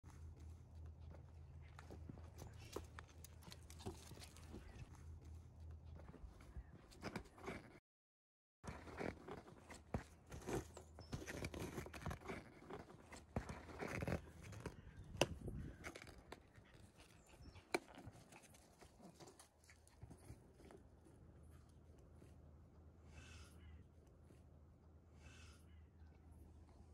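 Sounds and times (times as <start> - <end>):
puppy scuffling on gravel: 0.2 - 6.3.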